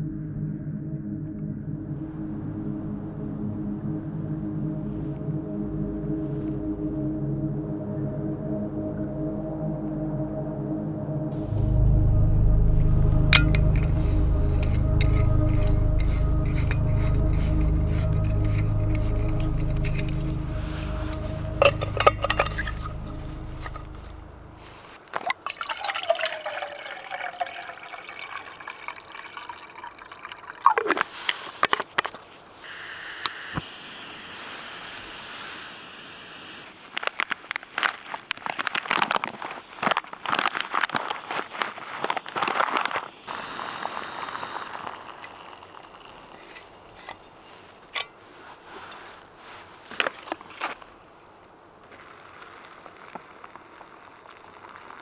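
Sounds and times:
water crackling and bubbling: 12.8 - 32.0, 52.0 - 55.0
gas stove burner hissing: 32.6 - 37.2, 43.2 - 46.5.

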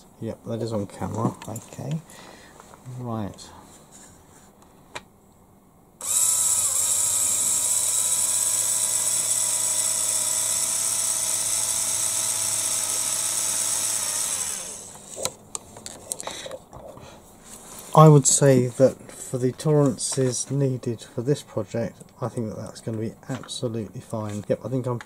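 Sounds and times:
small motor whining: 6.0 - 15.2.

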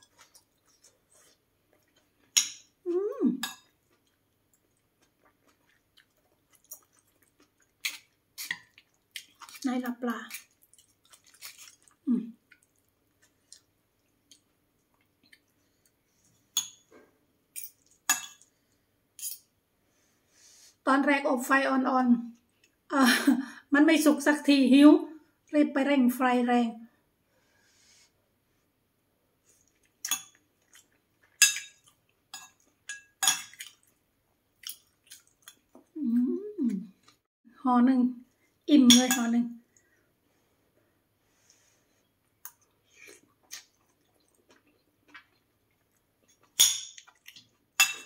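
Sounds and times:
cutlery clinking on ceramic bowl: 2.3 - 2.7, 16.6 - 16.9, 17.6 - 18.5, 30.1 - 30.4, 31.4 - 33.7, 38.9 - 39.3, 46.6 - 47.2, 47.8 - 48.0.

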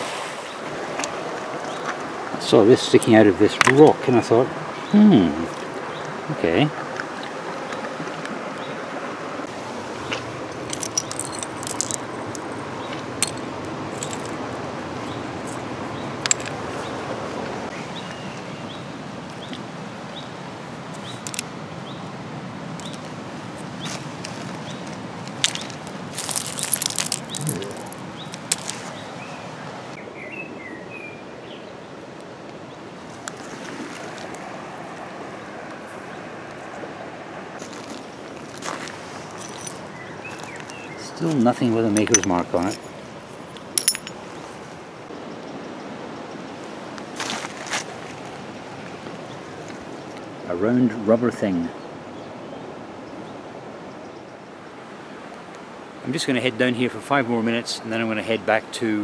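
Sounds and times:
pebbles clicking together: 10.6 - 12.5, 13.2 - 14.4, 25.3 - 28.8.

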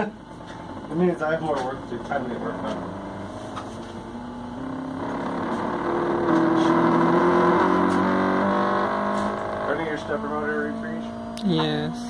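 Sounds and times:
stepper motor whining: 0.0 - 12.0.

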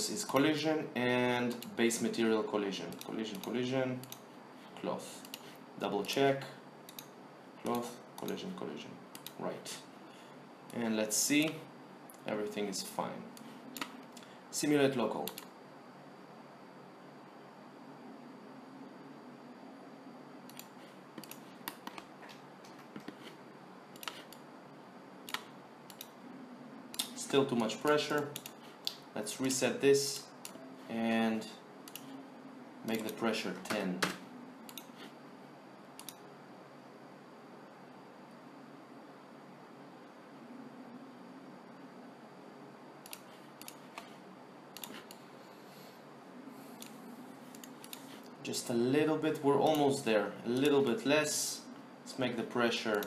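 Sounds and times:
faint steady hiss: 0.0 - 53.0
computer mouse clicks: 1.5 - 1.8, 2.9 - 4.3, 5.2 - 6.2, 6.9 - 8.4, 9.1 - 9.4, 13.3 - 14.3, 15.2 - 15.5, 20.5 - 24.5, 25.2 - 26.2, 26.9 - 27.2, 27.8 - 29.6, 31.8 - 32.2, 32.9 - 35.2, 36.0 - 36.2, 43.0 - 45.2, 46.8 - 48.4
mouse and keyboard clicks: 24.0 - 24.4, 44.8 - 45.2.

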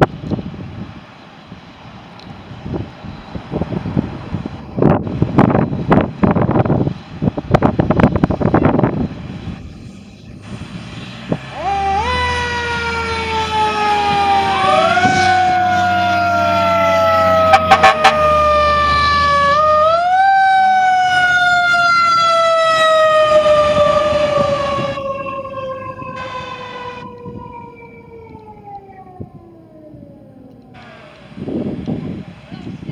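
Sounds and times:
mechanical siren wailing: 11.5 - 30.8
short loud horn blasts: 17.5 - 18.2.

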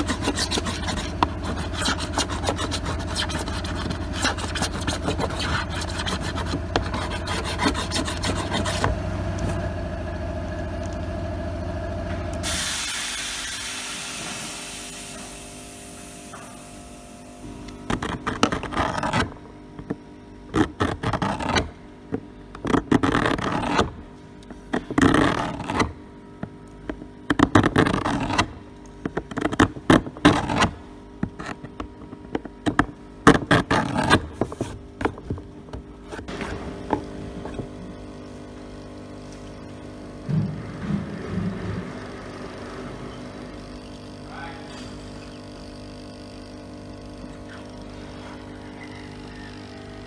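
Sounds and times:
tool scraping plastic: 0.0 - 9.6, 17.9 - 26.0, 26.8 - 37.7
hot air welder hissing: 12.4 - 17.6.

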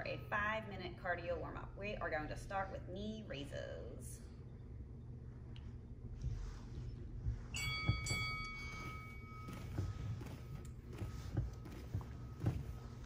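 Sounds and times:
bare feet thudding on foam mats: 6.2 - 13.0
ringing tone: 7.6 - 10.7.

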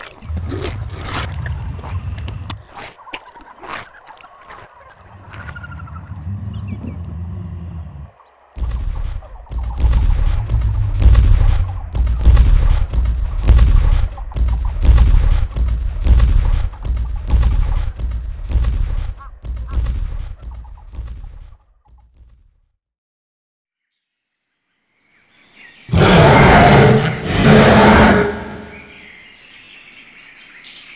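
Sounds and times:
loud heavy booms: 8.6 - 21.4.

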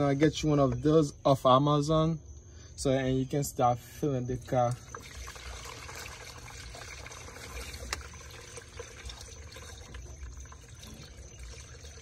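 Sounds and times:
liquid pouring into funnel: 4.4 - 12.0.

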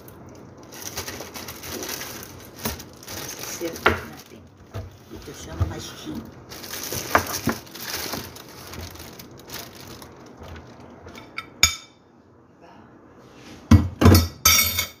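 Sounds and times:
plastic bag crinkling: 0.0 - 11.4
dishes clattering: 11.1 - 12.0.

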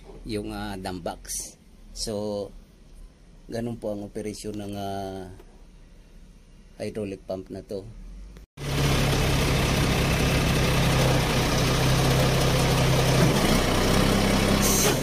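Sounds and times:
diesel engine running: 8.6 - 15.0
hydraulic pump: 8.6 - 15.0.

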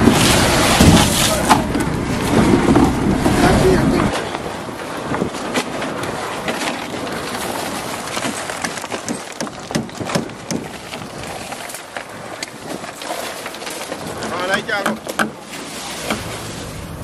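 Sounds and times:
construction background noise: 0.0 - 5.0, 12.4 - 17.0.

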